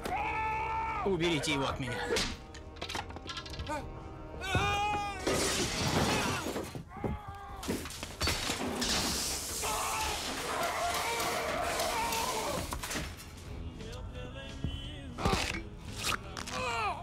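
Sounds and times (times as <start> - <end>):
glass shattering: 5.2 - 6.7, 7.8 - 13.4.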